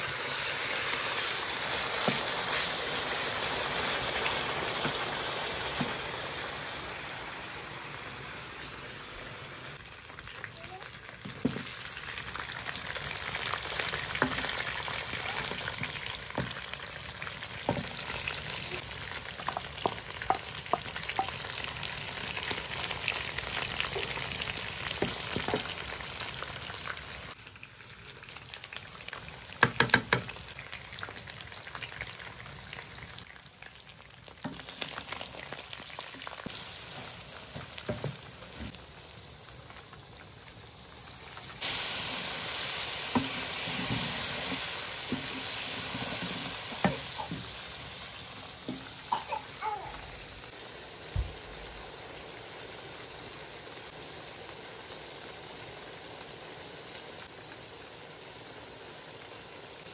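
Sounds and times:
food sizzling in oil: 0.0s - 59.9s
spoon knocking against pan: 19.5s - 21.4s, 29.6s - 30.3s.

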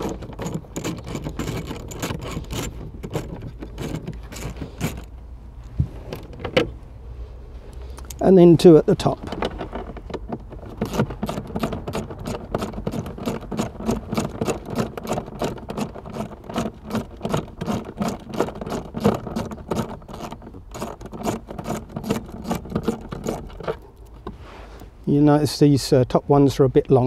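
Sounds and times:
socket ratchet clicking: 0.0s - 5.2s.

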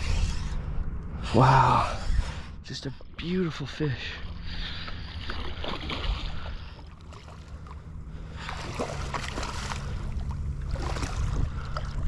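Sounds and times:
low rumble: 0.0s - 12.0s
water sloshing and splashing: 2.8s - 12.0s.

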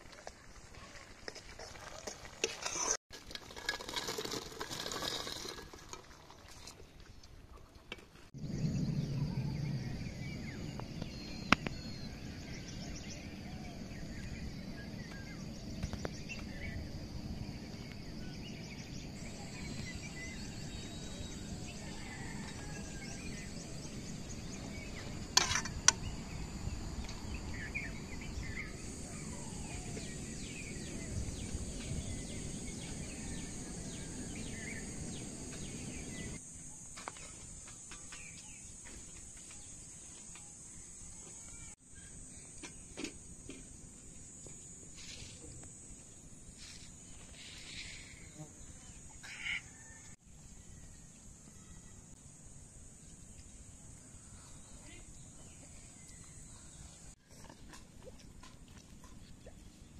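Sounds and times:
outdoor background noise: 0.0s - 59.9s
faint bird calls: 49.2s - 50.0s.

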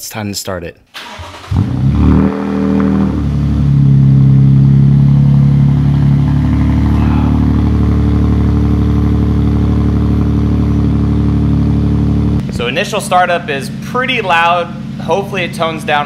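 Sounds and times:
loud truck engine idling: 5.2s - 12.4s.

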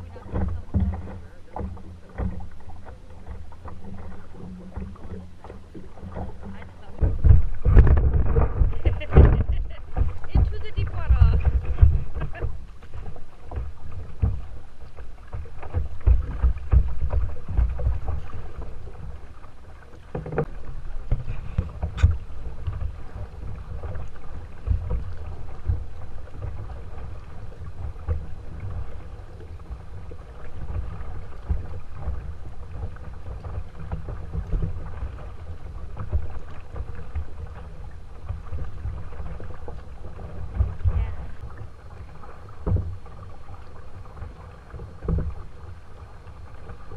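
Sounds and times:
water lapping against kayak hull: 0.0s - 46.9s
wind buffeting microphone: 5.8s - 14.7s.

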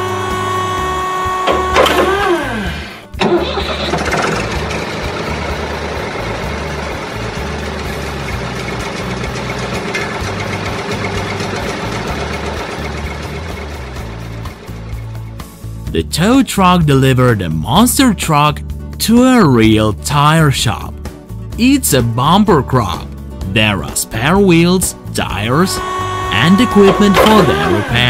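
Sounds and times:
cartoon engine running: 0.0s - 14.9s, 25.2s - 28.0s
background music: 0.0s - 28.0s
falling pitch sound effect: 25.6s - 28.0s.

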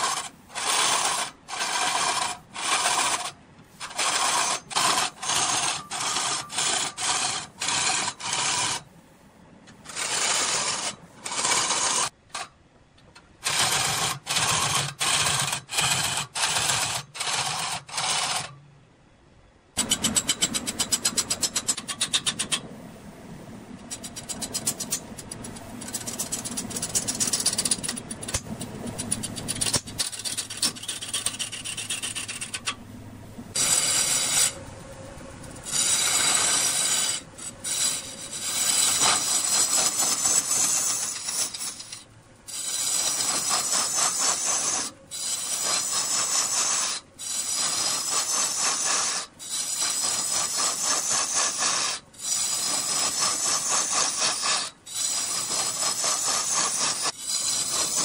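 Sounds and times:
scraping strokes on wood: 0.0s - 8.9s, 9.8s - 12.5s, 23.8s - 32.8s, 33.5s - 34.6s, 35.3s - 58.0s
low hum: 18.7s - 38.4s
woodworking machine chattering: 19.8s - 22.7s, 23.9s - 32.8s, 33.5s - 58.0s.

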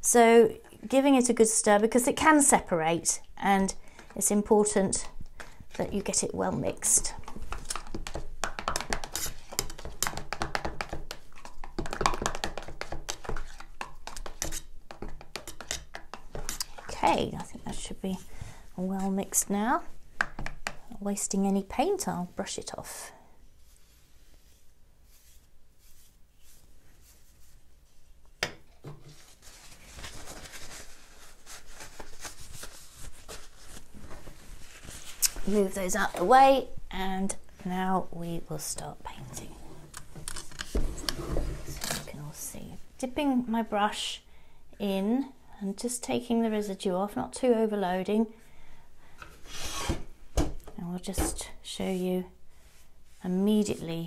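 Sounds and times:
chopstick stirring paint: 7.0s - 17.7s
paper towel rustling: 23.5s - 28.2s, 29.0s - 36.2s.

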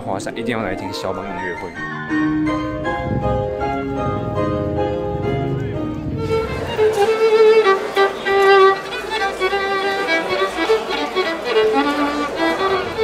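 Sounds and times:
violin melody with vibrato: 4.8s - 13.0s.

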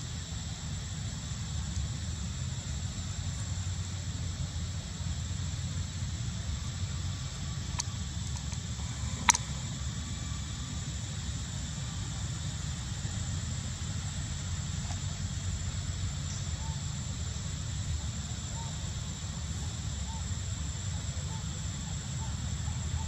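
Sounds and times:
high thin insect drone: 0.0s - 23.0s
sharp click: 9.2s - 9.5s.

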